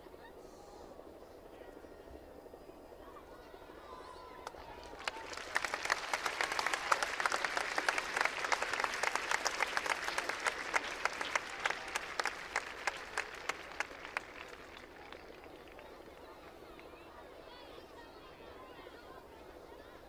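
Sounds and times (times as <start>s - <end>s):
crowd applauding: 4.4s - 17.0s.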